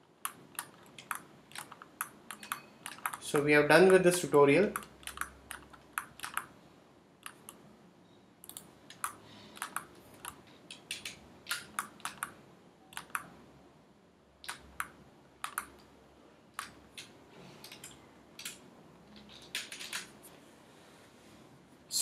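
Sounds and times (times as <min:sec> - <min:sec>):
mouse and keyboard clicks: 0:00.2 - 0:03.2, 0:04.7 - 0:06.5, 0:07.2 - 0:07.6, 0:08.4 - 0:13.4, 0:14.4 - 0:15.9.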